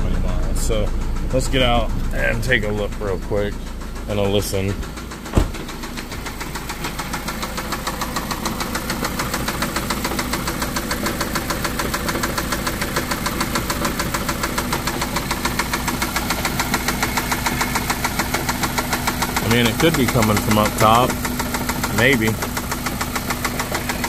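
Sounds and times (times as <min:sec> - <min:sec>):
engine idling with knock: 0:00.0 - 0:24.0
car door shutting: 0:04.8 - 0:05.9.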